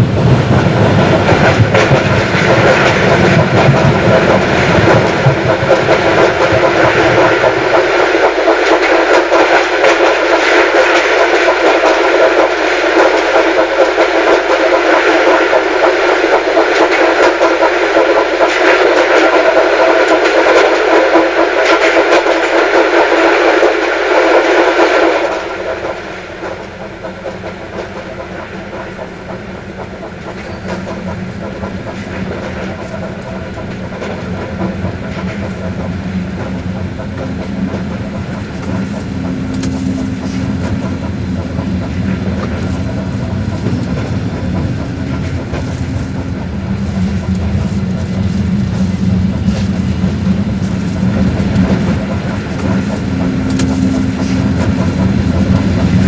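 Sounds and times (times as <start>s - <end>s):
train rumble inside carriage: 0.0s - 56.0s
faint rail clicks: 0.5s - 56.0s.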